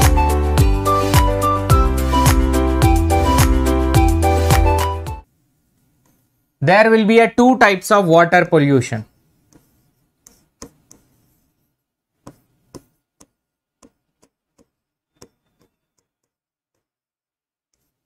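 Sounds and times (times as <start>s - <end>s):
marker tapping on writing board: 10.3s - 11.1s, 12.2s - 15.8s.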